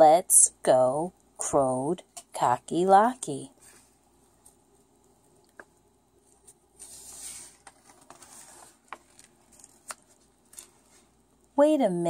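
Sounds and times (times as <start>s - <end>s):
book page turning: 5.6s - 11.1s.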